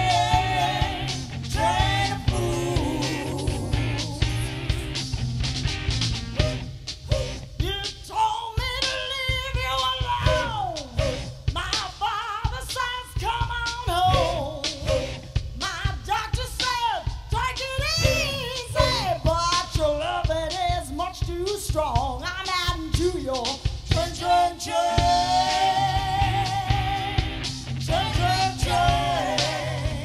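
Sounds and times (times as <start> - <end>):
person singing: 0.0 - 4.9
band playing dance music: 0.0 - 30.0
steady drum beat: 0.0 - 30.0.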